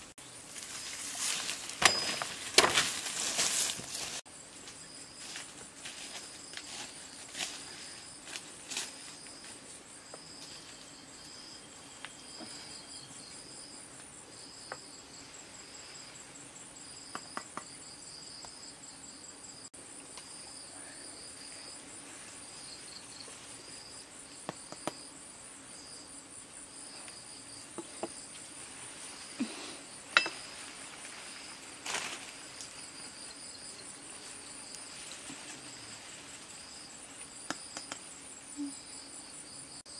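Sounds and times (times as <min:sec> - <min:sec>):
insects chirping: 0:00.0 - 0:39.9
branches and bark snapping: 0:00.6 - 0:04.2, 0:31.8 - 0:32.8.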